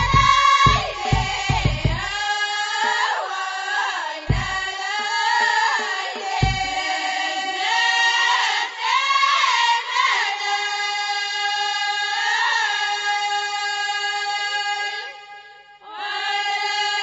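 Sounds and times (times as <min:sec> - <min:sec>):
deep drum stroke: 0:00.0 - 0:02.2, 0:04.3 - 0:04.6, 0:06.4 - 0:06.8
chorus singing together: 0:00.0 - 0:17.0.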